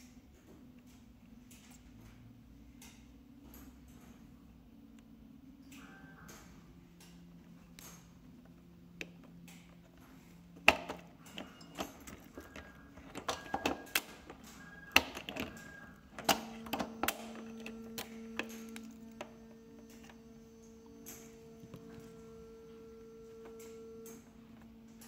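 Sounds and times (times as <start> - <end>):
key working a lock: 10.6 - 20.2.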